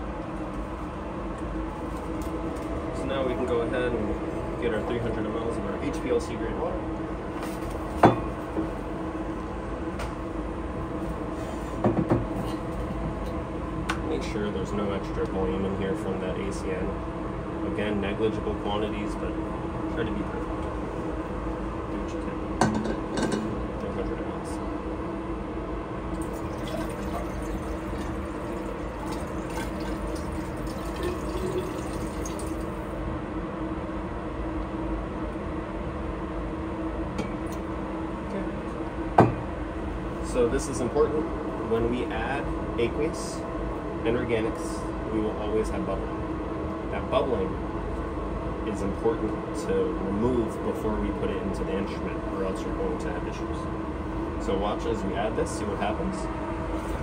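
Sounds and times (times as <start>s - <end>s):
low machine hum: 0.0s - 57.0s
water pouring into glass: 26.2s - 32.8s.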